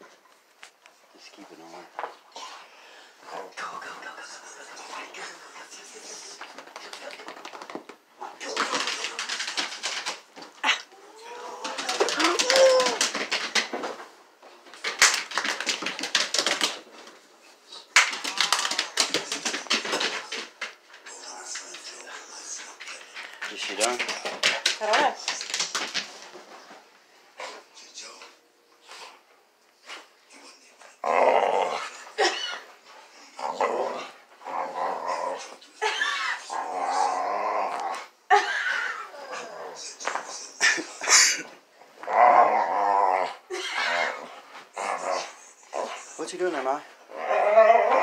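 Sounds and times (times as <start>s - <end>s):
dog claws scrabbling on floor: 6.4s - 10.8s, 11.5s - 17.2s, 17.9s - 26.8s
dog growling: 31.0s - 32.0s, 33.3s - 35.6s, 36.2s - 38.2s, 42.0s - 46.0s, 47.1s - 48.0s.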